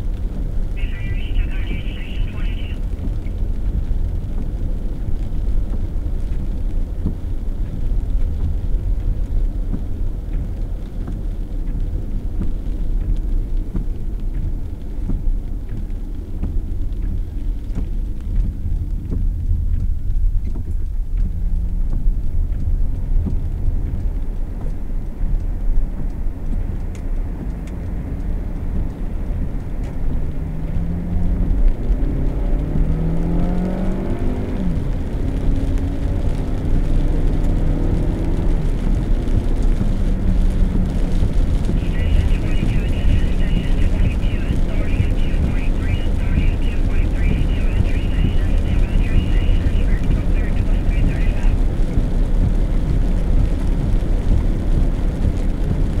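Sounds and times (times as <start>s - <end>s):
car engine accelerating: 17.0s - 56.0s.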